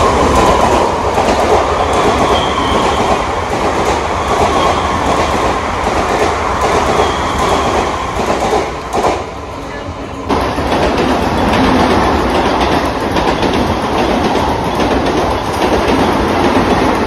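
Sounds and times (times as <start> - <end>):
train rumbling past: 0.0 - 17.0
high wheel squeal: 1.8 - 3.2, 6.8 - 8.2
wheel clatter on rails: 10.3 - 17.0.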